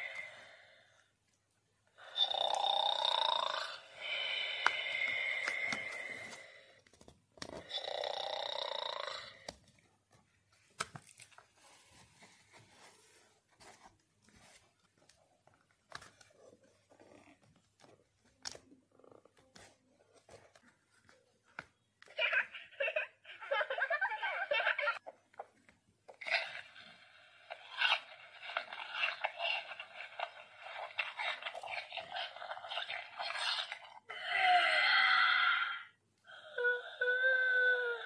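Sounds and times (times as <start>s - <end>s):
recorded snoring from toy speaker: 2.0s - 6.2s, 7.6s - 9.5s, 26.3s - 34.2s.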